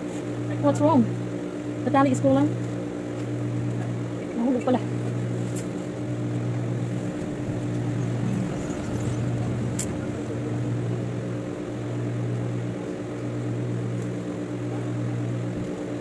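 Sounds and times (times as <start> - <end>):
sewing machine motor hum: 6.6 - 11.7.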